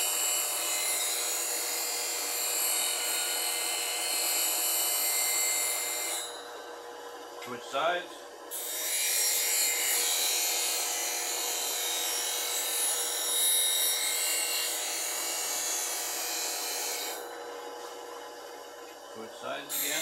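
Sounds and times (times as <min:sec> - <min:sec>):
grinder motor hum: 0:14.6 - 0:20.0
grinder wheel grinding steel: 0:19.5 - 0:20.0.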